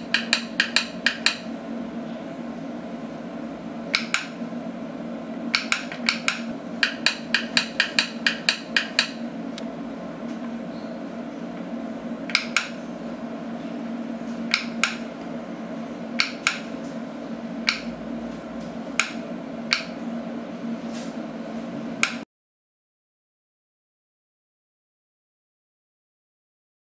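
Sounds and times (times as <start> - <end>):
steady low hum: 0.0 - 22.2
wall switch clicks: 0.1 - 1.4, 3.9 - 4.4, 5.5 - 9.7, 12.3 - 12.8, 14.5 - 15.1, 16.2 - 16.7, 17.6 - 18.0, 19.0 - 20.0, 22.0 - 22.2.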